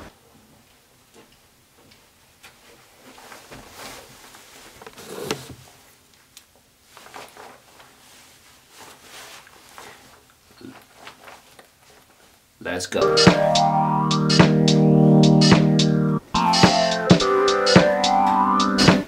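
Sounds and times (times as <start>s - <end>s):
clothing rustle: 2.4s - 12.6s
shuffling on carpet: 2.5s - 5.0s, 6.8s - 12.4s.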